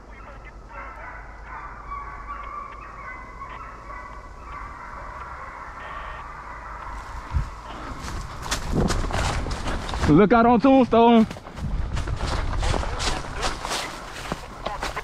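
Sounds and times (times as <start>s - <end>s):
hounds baying: 0.0s - 8.2s.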